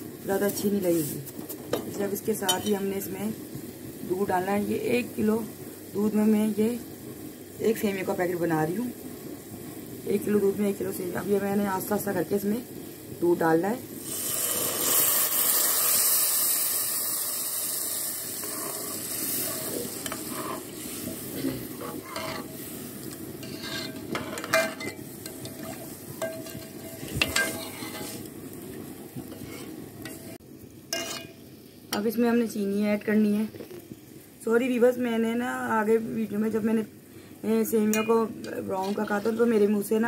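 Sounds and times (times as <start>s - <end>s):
milk sizzling in hot pot: 0.0s - 40.0s
ladle stirring and scraping pot: 18.4s - 28.3s, 29.2s - 31.4s, 38.0s - 39.5s.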